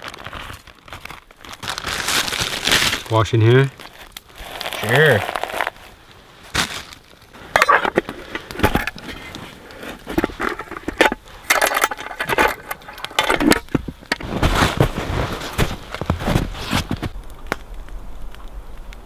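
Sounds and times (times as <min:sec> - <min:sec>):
metal pot and lid clinking: 0:07.5 - 0:09.0, 0:10.1 - 0:13.7.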